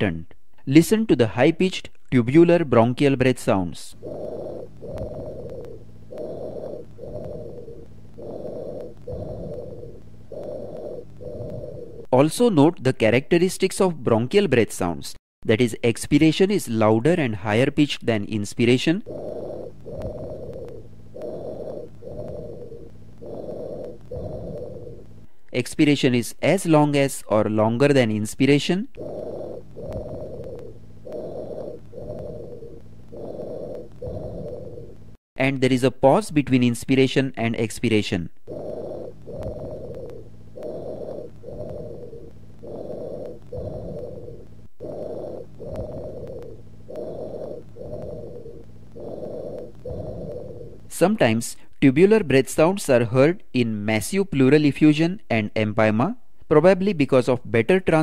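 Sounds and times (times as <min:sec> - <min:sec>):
high-pitched breathing: 0:03.5 - 0:12.1, 0:18.1 - 0:25.5, 0:27.9 - 0:35.1, 0:37.8 - 0:51.0.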